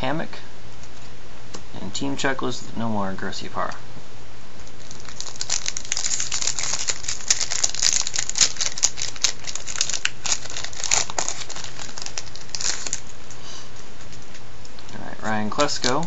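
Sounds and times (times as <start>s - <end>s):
wrapper being torn and crinkled: 4.6s - 13.2s, 15.5s - 16.0s.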